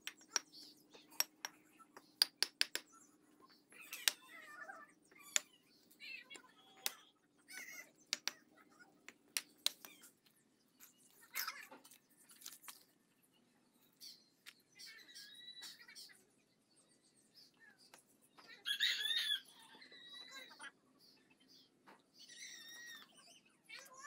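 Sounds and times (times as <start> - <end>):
hammer tapping bricks: 0.0 - 2.9, 8.1 - 8.4.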